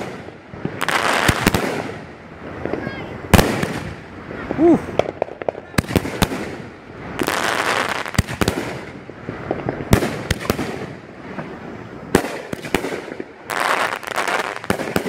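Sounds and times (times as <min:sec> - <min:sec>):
fireworks bangs: 0:00.0 - 0:15.0
fireworks crackle: 0:00.0 - 0:15.0.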